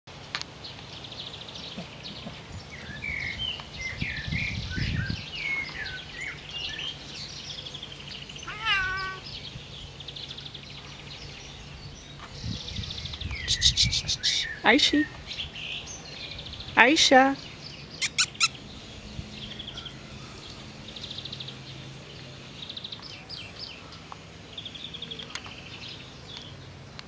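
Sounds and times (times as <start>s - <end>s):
birds singing: 0.6s - 27.0s
cat meowing: 8.4s - 9.3s.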